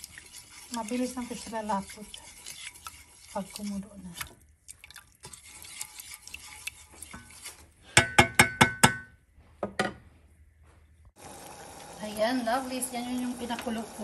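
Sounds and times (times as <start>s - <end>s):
spoon stirring syrup in a pot: 0.0s - 8.2s
spoon knocking against pot: 8.0s - 10.0s.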